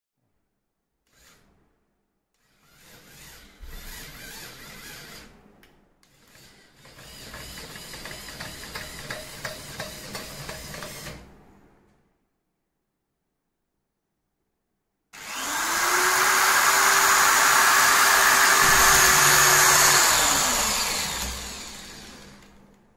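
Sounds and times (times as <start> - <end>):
drilling machine motors whirring: 15.2 - 22.6.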